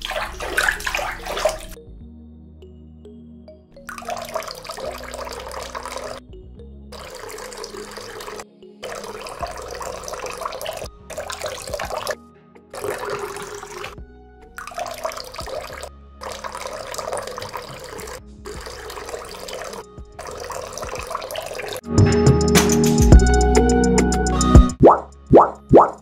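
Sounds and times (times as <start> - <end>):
water pouring onto sand: 0.0 - 1.8, 3.9 - 6.2, 7.0 - 12.2, 12.8 - 14.0, 14.6 - 21.8.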